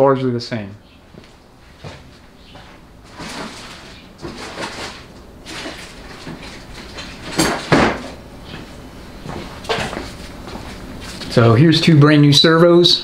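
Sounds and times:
rustling: 0:01.7 - 0:07.3.

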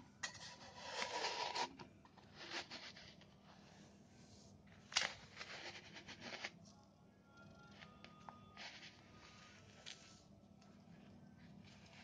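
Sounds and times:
plastic cup scraping through sand: 0:00.4 - 0:03.2, 0:05.0 - 0:06.6.

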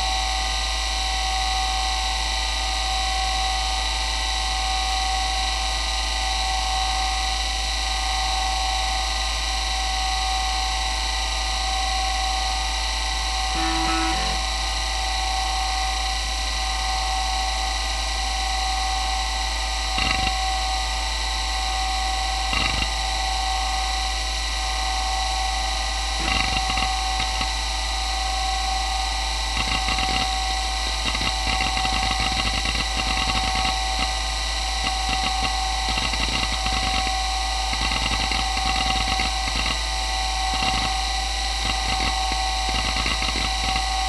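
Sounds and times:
hard drive spinning whine: 0:00.0 - 0:44.0
hard drive head seek clicks: 0:20.0 - 0:20.4, 0:26.2 - 0:27.5, 0:29.6 - 0:34.2, 0:34.8 - 0:39.8, 0:40.5 - 0:41.0, 0:41.6 - 0:44.0.

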